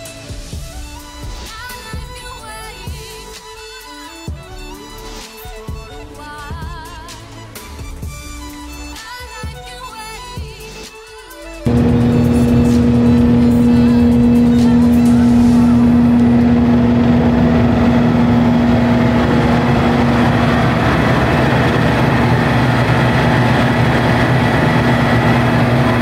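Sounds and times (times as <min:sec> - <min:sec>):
forage harvester machine drone: 0:11.7 - 0:26.0.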